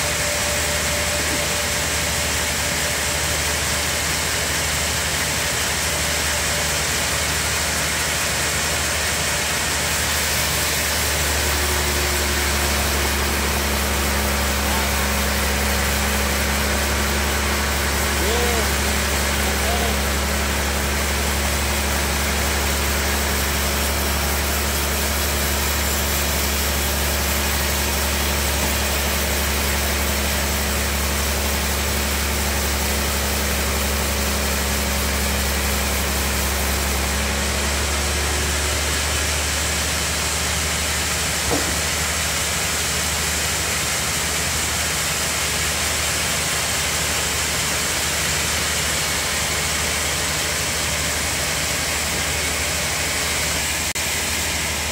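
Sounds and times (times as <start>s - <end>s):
band saw cutting a log: 7.2s - 45.3s.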